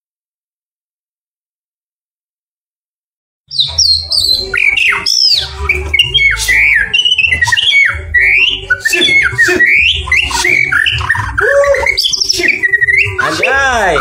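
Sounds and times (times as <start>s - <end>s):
bird singing whistled phrases: 3.5s - 14.0s.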